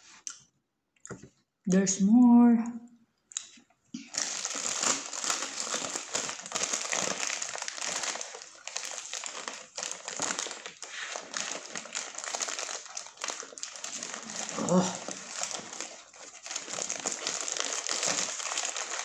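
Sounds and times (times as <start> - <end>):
paper wrapper crinkling: 4.1 - 19.0.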